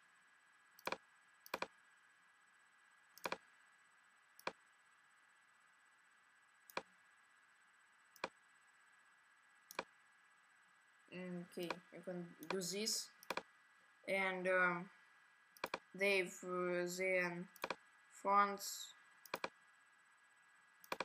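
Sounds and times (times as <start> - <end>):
computer mouse clicking: 0.8 - 1.7, 3.2 - 3.4, 6.7 - 6.9, 8.2 - 8.4, 9.7 - 9.9, 12.4 - 12.6, 13.2 - 13.5, 15.6 - 15.9, 17.6 - 17.8, 19.2 - 19.6.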